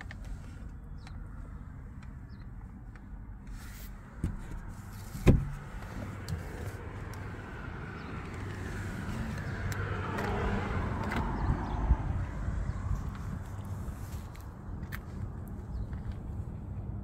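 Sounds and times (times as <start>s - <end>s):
handling noises in car: 0.0s - 11.8s, 12.7s - 17.0s
street noise: 0.0s - 17.0s
car door opening: 4.1s - 6.8s.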